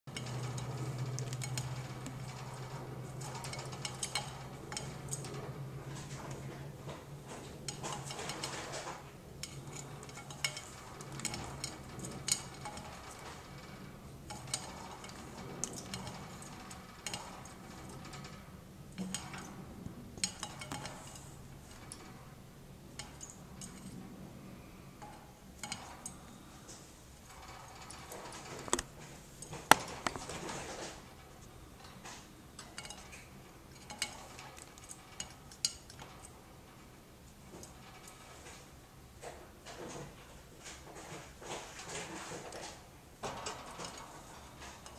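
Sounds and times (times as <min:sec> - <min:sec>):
beak and feet clicking on dish: 0:00.1 - 0:05.4.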